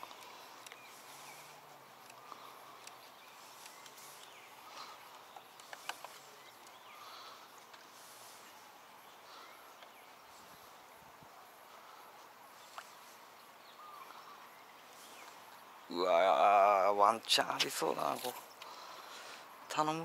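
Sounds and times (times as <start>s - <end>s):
faint bird chirps: 0.0s - 17.0s
light clicks: 5.0s - 6.8s.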